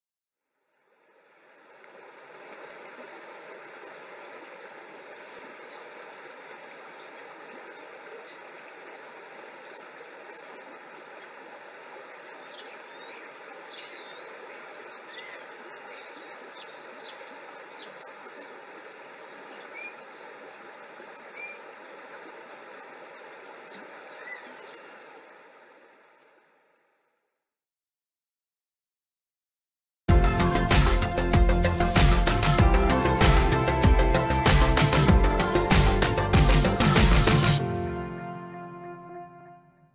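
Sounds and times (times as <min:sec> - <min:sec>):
rain hissing: 0:30.3 - 0:37.6.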